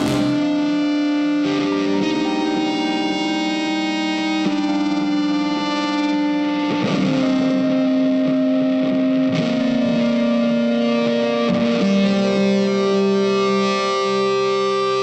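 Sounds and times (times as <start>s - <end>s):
guitar playing held chords: 0.0s - 15.0s.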